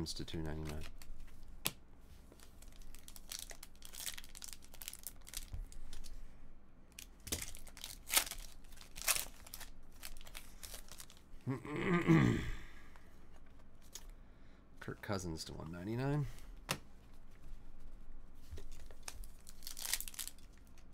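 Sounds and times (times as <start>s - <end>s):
foil wrapper tearing and crinkling: 2.4s - 6.1s, 6.9s - 11.3s, 18.7s - 20.8s.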